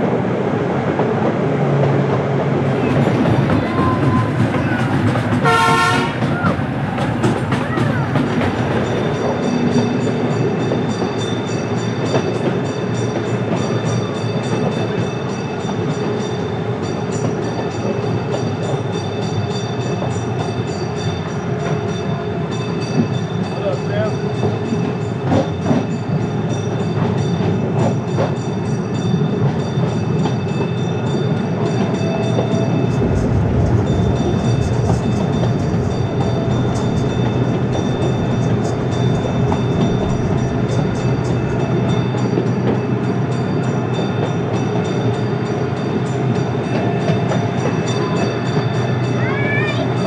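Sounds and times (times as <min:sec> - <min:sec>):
train wheels rattling on rails: 0:00.0 - 0:50.0
deeper rumble: 0:02.6 - 0:09.4, 0:32.4 - 0:42.6
steady whine: 0:32.6 - 0:42.4.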